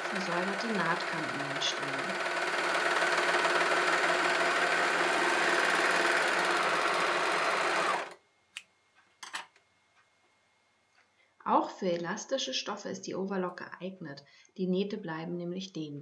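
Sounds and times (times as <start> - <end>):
overlock sewing machine running: 0.0 - 8.2.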